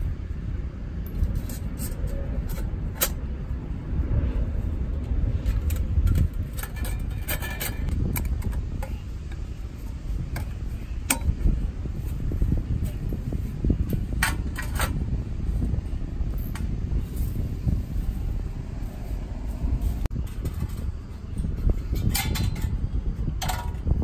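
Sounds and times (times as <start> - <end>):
steady low rumble: 0.0 - 24.0
metal panels clicking and clinking: 1.0 - 3.4, 5.3 - 13.1, 13.7 - 15.1, 20.1 - 24.0.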